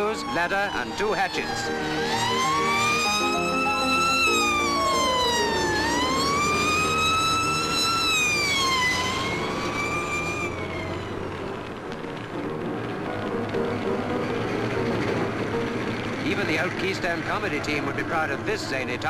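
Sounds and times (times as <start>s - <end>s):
band music: 0.0s - 8.0s, 11.8s - 16.8s
fire engine siren wailing: 0.0s - 19.0s.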